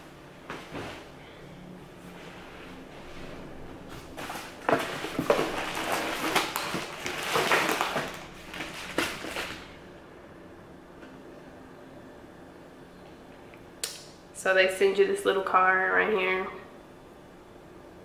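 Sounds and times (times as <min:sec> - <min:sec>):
packaging crinkling: 0:04.0 - 0:09.8.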